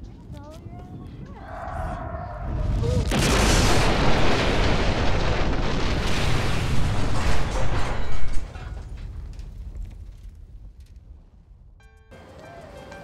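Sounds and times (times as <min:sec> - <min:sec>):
loud rumbling blast: 0:02.1 - 0:08.5.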